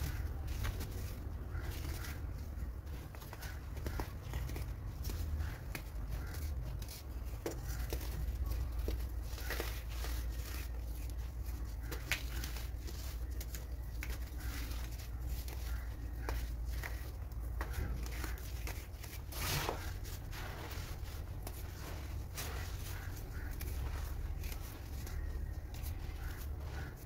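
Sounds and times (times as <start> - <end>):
powder clumps crunching in fingers: 0.0 - 27.0.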